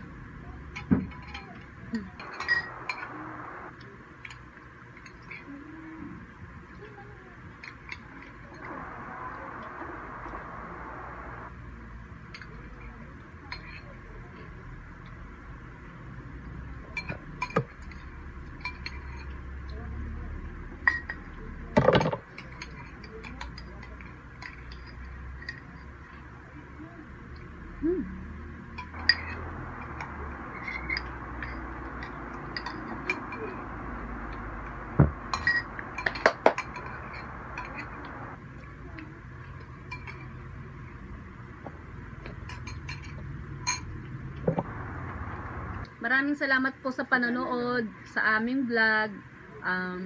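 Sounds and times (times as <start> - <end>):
spoons clinking in bowls: 17.0 - 19.4, 28.8 - 33.6, 35.3 - 38.0, 39.8 - 40.4, 42.4 - 44.0.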